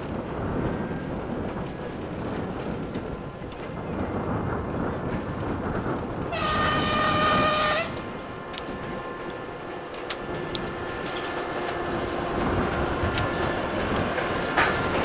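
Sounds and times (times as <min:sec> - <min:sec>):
diesel locomotive running: 0:00.0 - 0:15.0
train horn blast: 0:06.3 - 0:13.8.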